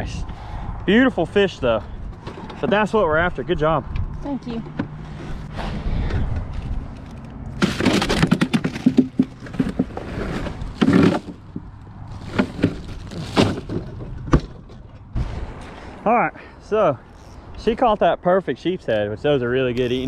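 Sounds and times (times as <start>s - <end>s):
plastic bag of ice crinkling: 12.1s - 13.7s.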